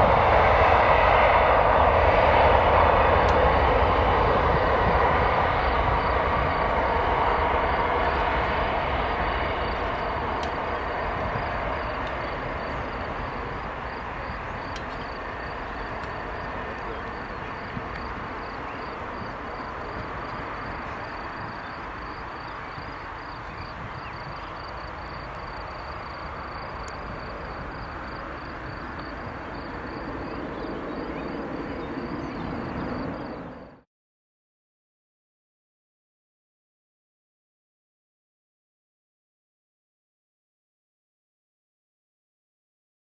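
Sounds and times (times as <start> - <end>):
jet engines roaring: 0.0 - 33.8
insects chirping: 3.3 - 33.7.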